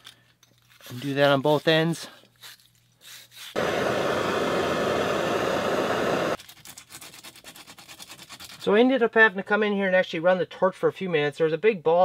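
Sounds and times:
sandpaper scratching on pipe: 0.7s - 3.6s, 6.4s - 8.8s
torch flame hissing: 3.5s - 6.4s.

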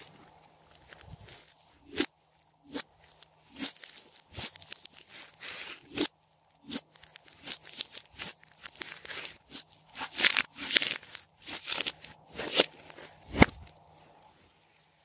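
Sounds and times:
slime crackling and squelching: 0.0s - 15.0s.

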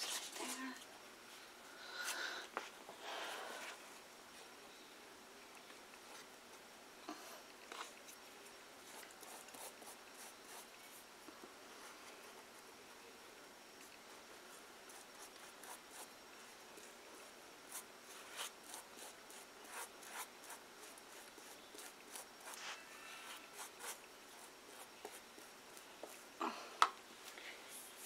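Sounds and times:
paintbrush scratching on cardboard: 8.8s - 11.0s, 14.9s - 16.1s, 17.2s - 26.2s.

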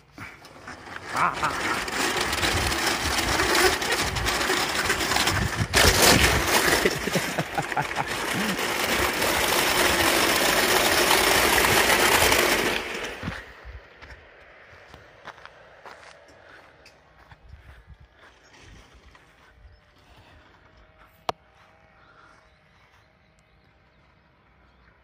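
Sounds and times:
roller slide rollers rattling: 0.0s - 13.7s.

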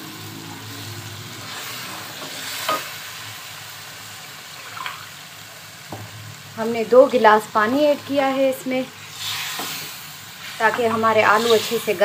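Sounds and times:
curry sizzling in oil: 0.0s - 12.0s.

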